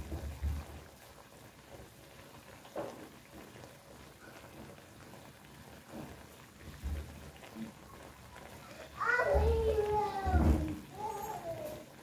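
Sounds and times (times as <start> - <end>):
broth simmering in a wok: 0.0 - 12.0.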